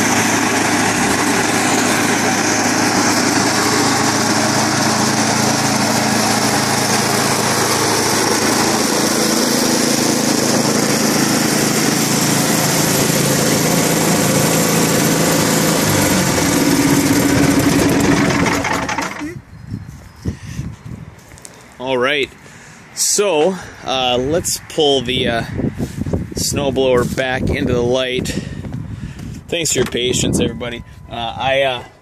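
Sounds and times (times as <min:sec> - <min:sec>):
snowblower engine running: 0:00.0 - 0:19.4.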